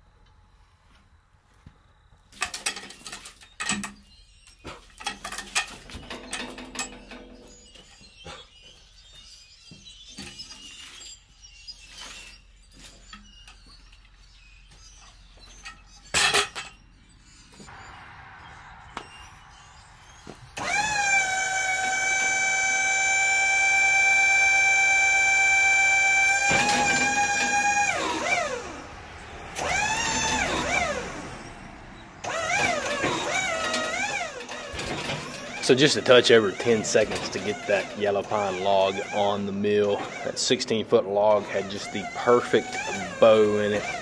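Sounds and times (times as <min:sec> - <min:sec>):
knocks and clunks: 0:02.4 - 0:08.8, 0:26.2 - 0:28.9, 0:32.2 - 0:44.0
hydraulic pump whine: 0:02.4 - 0:16.9, 0:17.6 - 0:44.0.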